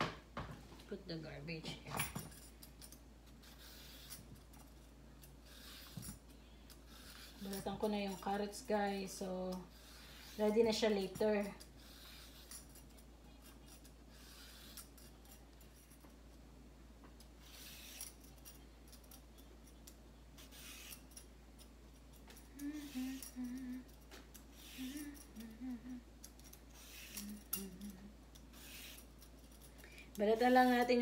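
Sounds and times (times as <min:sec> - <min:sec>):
soft humming voice: 0:00.7 - 0:16.4, 0:17.0 - 0:31.0
vegetable peeler scraping carrot: 0:03.4 - 0:04.6, 0:05.2 - 0:15.4, 0:17.2 - 0:18.4, 0:20.4 - 0:21.2, 0:22.6 - 0:25.5, 0:26.2 - 0:31.0.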